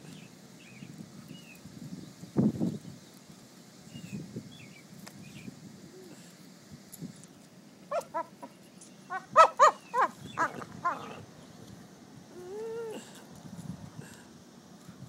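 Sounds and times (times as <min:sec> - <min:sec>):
dog yelping whoops: 0:07.9 - 0:08.4, 0:09.1 - 0:11.2
dog whining: 0:09.1 - 0:11.2, 0:12.3 - 0:13.2.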